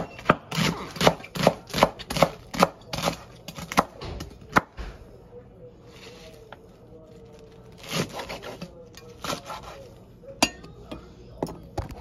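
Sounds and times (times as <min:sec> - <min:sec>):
knife slicing leafy greens: 0:00.0 - 0:03.9, 0:07.1 - 0:09.9.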